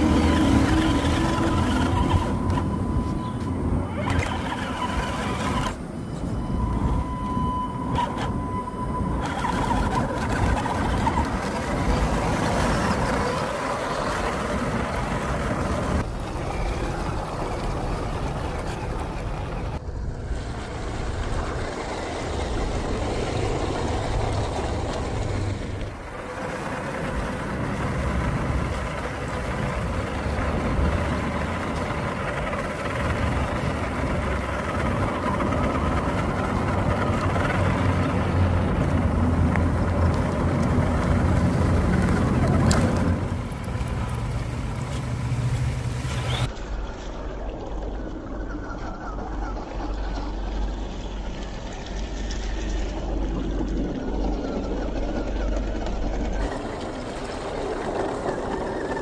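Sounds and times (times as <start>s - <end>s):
rc car motor whine: 0.0s - 19.9s
wheels rumbling over terrain: 0.0s - 59.0s.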